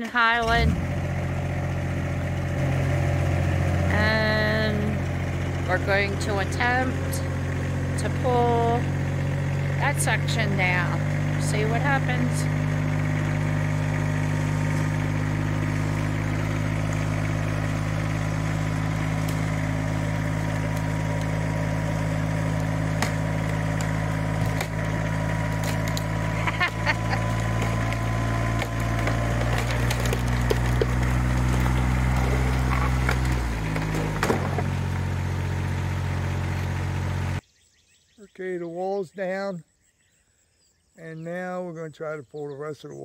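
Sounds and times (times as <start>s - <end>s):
vehicle engine running under load: 0.0s - 37.4s
wood cracking and splintering: 12.5s - 36.9s.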